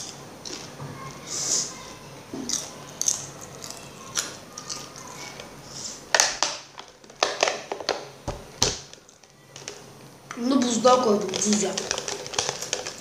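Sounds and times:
frozen plastic bottle crackling: 6.1 - 13.0.

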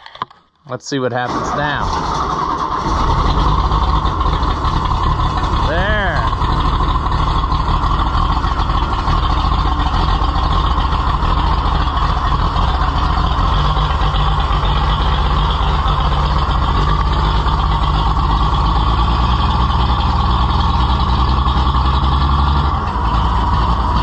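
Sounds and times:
diesel tractor engine running: 1.2 - 24.0.

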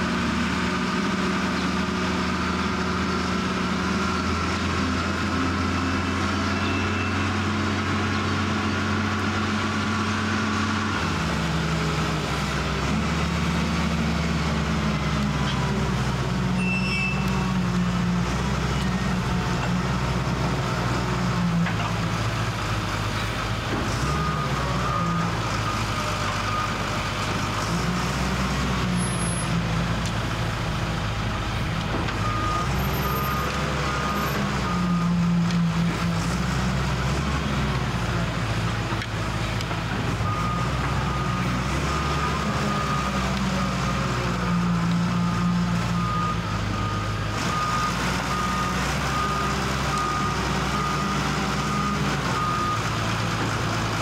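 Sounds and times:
diesel engine running: 0.0 - 54.0
reversing alarm beeps: 32.2 - 35.3, 40.2 - 53.4.

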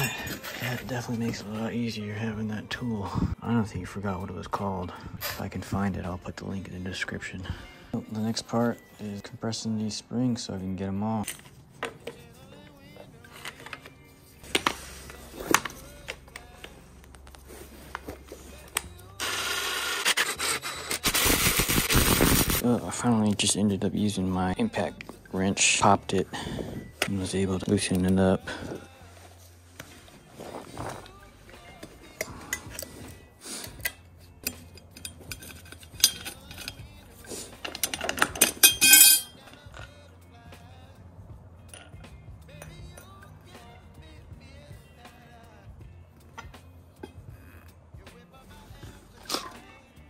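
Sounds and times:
metal clinks and knocks: 33.8 - 37.0, 37.6 - 39.4.

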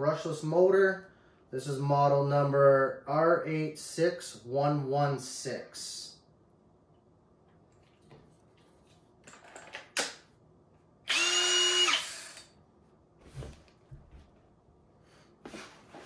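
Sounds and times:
drill motor whining: 11.1 - 12.5.

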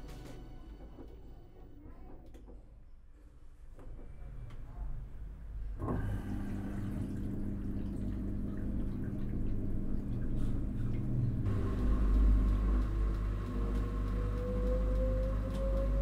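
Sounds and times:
washing machine motor hum: 3.9 - 16.0
water and laundry sloshing: 5.8 - 11.6.

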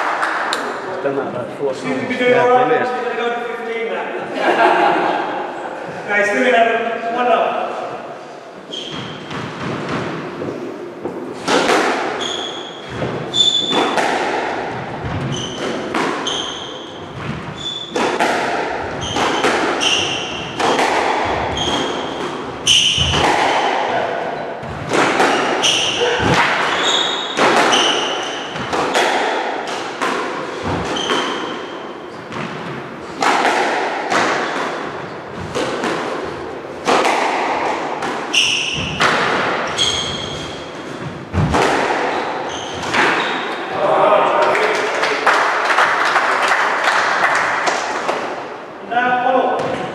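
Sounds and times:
shoes squeaking on wooden floor: 8.7 - 11.2, 12.1 - 14.0, 14.8 - 18.0, 18.8 - 20.6, 21.2 - 23.3, 24.6 - 28.8, 30.6 - 32.4, 38.2 - 43.7
squash ball hits echoing: 8.8 - 43.7, 49.5 - 49.9.

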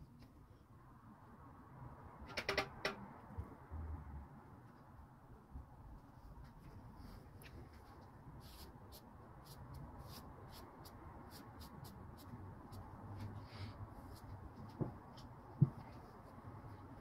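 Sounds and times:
ink brush scratching on paper: 8.4 - 16.2.

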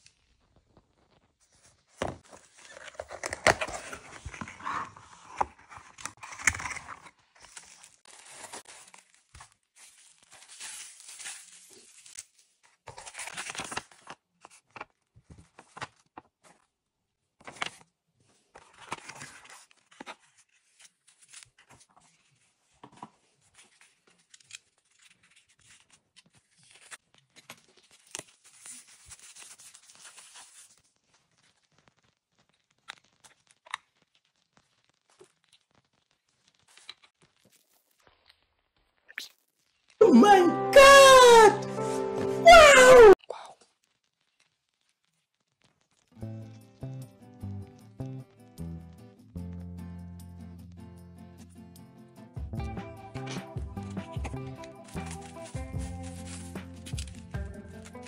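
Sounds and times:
paper rustling and crinkling: 0.0 - 38.5, 53.1 - 58.0
tape tearing: 2.2 - 14.2, 53.2 - 58.0.

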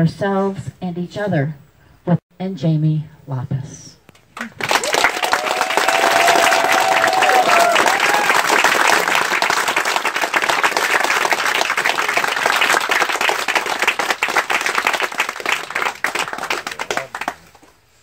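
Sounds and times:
crowd clapping: 4.3 - 17.8.

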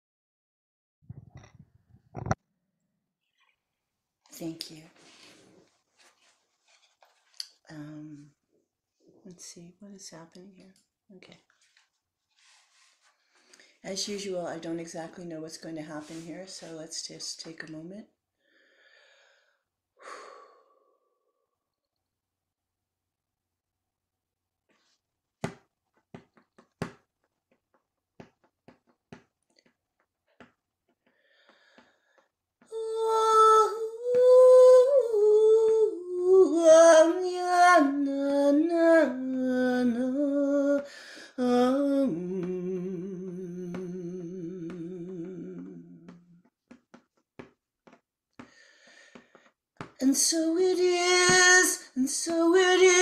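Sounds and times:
woman chanting: 32.7 - 46.3.

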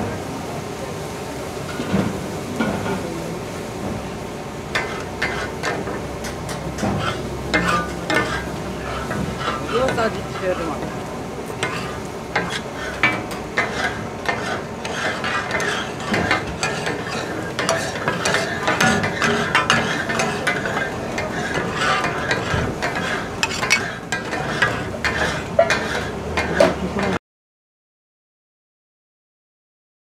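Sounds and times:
metal spatulas clattering on griddle: 4.8 - 10.6, 11.6 - 27.2.

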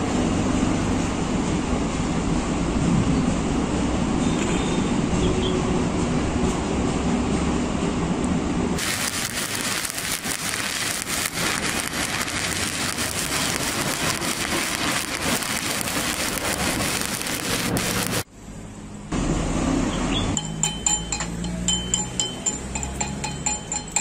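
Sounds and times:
welding arc crackling and sizzling: 8.8 - 18.3.

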